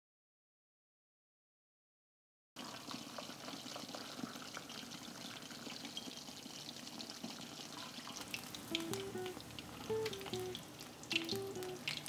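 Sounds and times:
hot oil sizzling in wok: 0:02.6 - 0:12.0.

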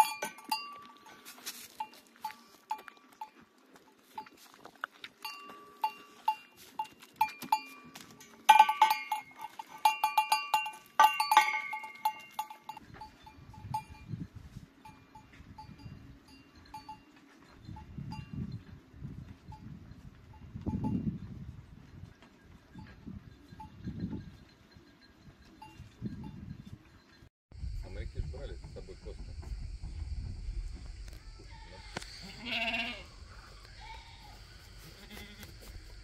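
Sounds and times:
goat bell clinking: 0:00.0 - 0:27.3
low rumble: 0:27.6 - 0:32.1.

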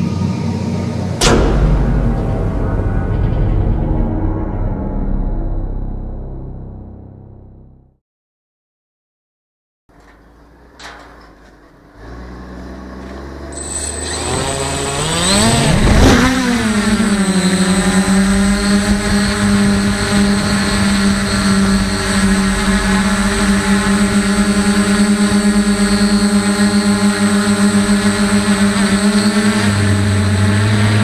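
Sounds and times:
drone motors buzzing: 0:10.6 - 0:31.0.

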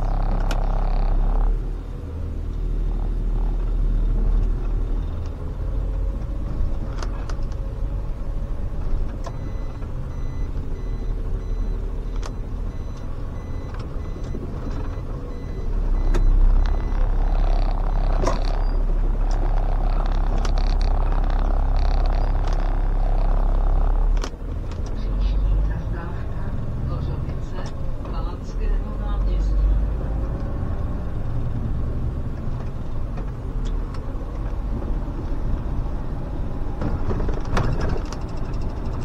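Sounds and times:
diesel engine rumbling: 0:00.0 - 0:39.0
quick high beeps: 0:09.4 - 0:18.9.

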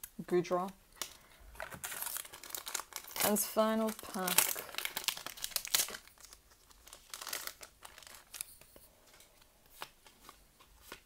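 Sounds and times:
foil wrapper ripping: 0:01.0 - 0:08.5
foil crinkling: 0:01.0 - 0:09.2.

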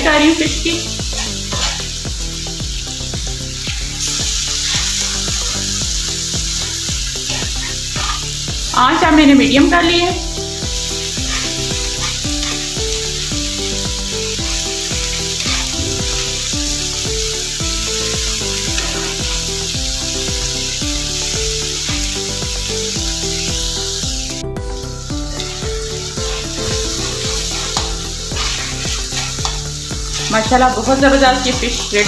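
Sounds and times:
background music with held notes: 0:00.0 - 0:32.0
fish sizzling in a pan: 0:00.0 - 0:32.0
metal spatula scraping: 0:00.8 - 0:02.4, 0:03.5 - 0:06.0, 0:06.6 - 0:08.5, 0:10.5 - 0:20.3, 0:25.3 - 0:32.0.

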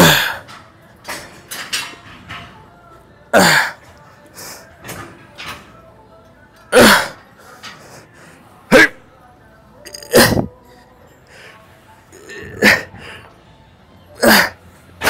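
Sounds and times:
man grunting with effort: 0:06.8 - 0:07.2, 0:09.9 - 0:10.5, 0:12.2 - 0:13.0, 0:14.2 - 0:14.6.

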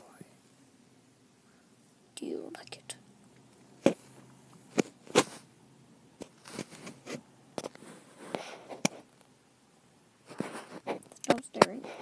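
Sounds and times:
soft rustling: 0:06.2 - 0:09.2, 0:10.2 - 0:12.0.

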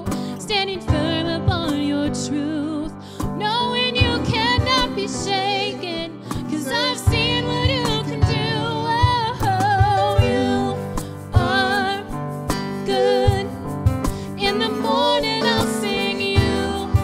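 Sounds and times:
person singing with vibrato: 0:00.4 - 0:17.0
drum hits: 0:13.3 - 0:14.4.

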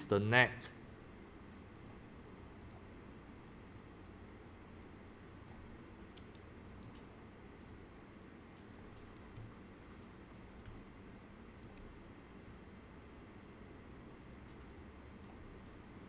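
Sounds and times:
low steady hum: 0:00.0 - 0:16.0
computer mouse clicks: 0:01.8 - 0:02.0, 0:02.6 - 0:02.9, 0:03.7 - 0:03.9, 0:05.4 - 0:07.8, 0:08.6 - 0:10.8, 0:11.5 - 0:12.6, 0:14.4 - 0:15.8.

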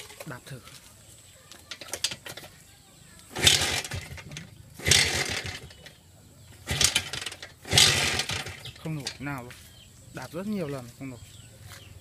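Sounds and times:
motorcycle kick-start cranking: 0:01.6 - 0:02.6, 0:03.3 - 0:09.3.

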